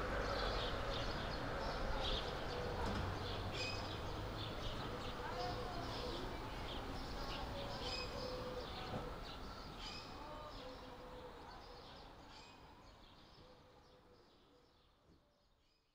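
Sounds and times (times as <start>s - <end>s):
faint outdoor background noise: 0.0s - 15.9s.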